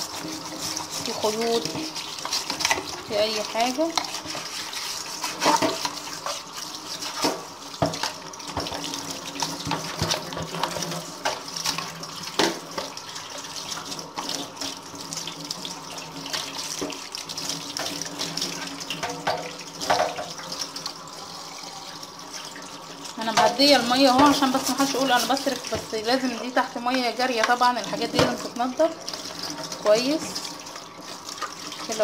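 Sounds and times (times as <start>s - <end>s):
toothbrush scrubbing plastic: 0.0s - 7.4s, 23.7s - 26.3s
tap water running into sink: 0.0s - 32.0s
plastic knocking against sink: 19.0s - 20.4s, 27.4s - 28.4s.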